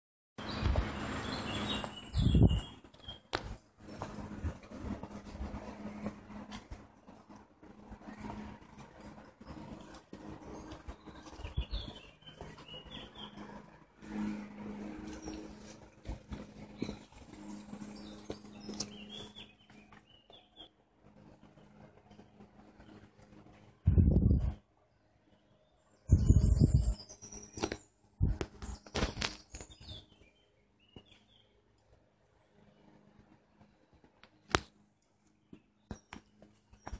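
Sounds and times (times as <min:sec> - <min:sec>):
bird chirps: 0:00.4 - 0:03.4, 0:10.4 - 0:13.6, 0:16.4 - 0:20.7, 0:25.4 - 0:31.5
low hum: 0:00.4 - 0:30.5
footsteps on dirt path: 0:01.6 - 0:20.7.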